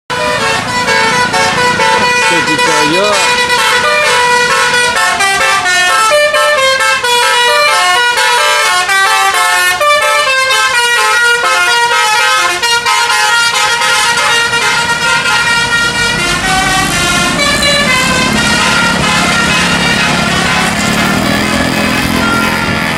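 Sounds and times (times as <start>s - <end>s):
low engine sound: 0.1s - 8.0s, 12.5s - 22.9s
bus musical horn melody: 0.1s - 22.9s.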